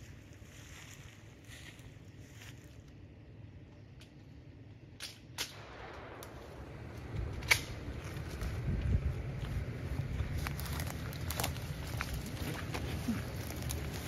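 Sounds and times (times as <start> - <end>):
footsteps through dry leaves: 0.0 - 2.9, 8.0 - 14.0
wind rumble on microphone: 5.6 - 14.0
twigs cracking: 9.4 - 14.0.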